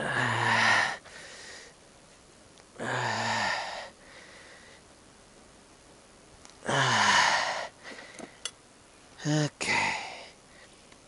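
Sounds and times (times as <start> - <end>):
man breathing out hard: 0.0 - 1.8, 2.8 - 4.8.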